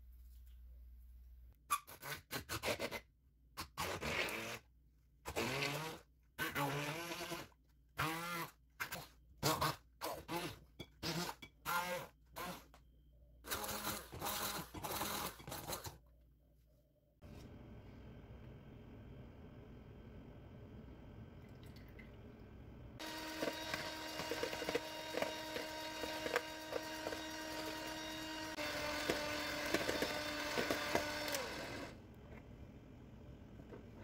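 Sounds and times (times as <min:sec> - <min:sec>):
immersion blender motor: 0:05.3 - 0:12.8, 0:13.5 - 0:15.9, 0:23.0 - 0:32.0.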